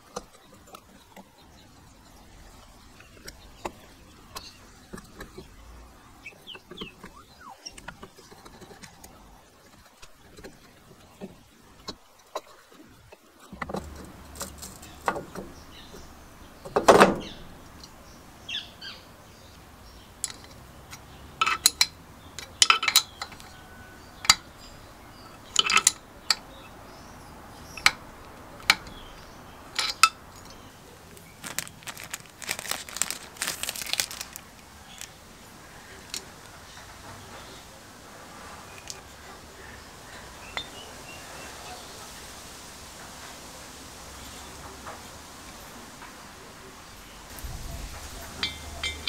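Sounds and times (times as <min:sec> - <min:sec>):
metal parts and tools clinking: 0:25.6 - 0:26.4, 0:29.8 - 0:35.2
plastic bag crinkling: 0:31.0 - 0:36.5.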